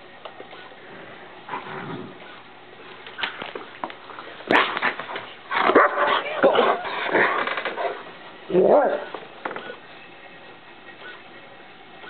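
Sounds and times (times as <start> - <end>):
dog grumbling and whining: 4.5 - 9.8.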